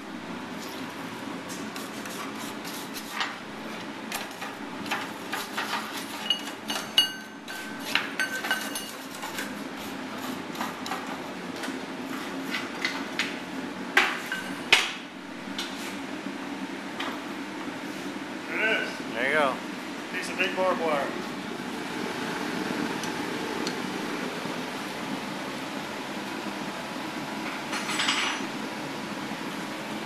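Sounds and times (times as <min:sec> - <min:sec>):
steady hum: 0:15.1 - 0:27.6.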